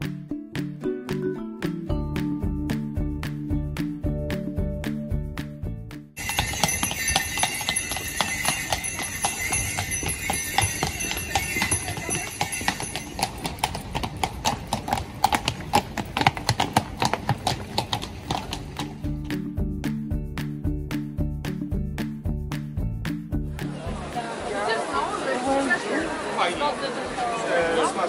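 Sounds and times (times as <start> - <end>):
background music: 0.0 - 13.8, 17.0 - 26.1
high steady ringing: 6.2 - 14.5
horse hooves on cobblestones: 6.2 - 19.6.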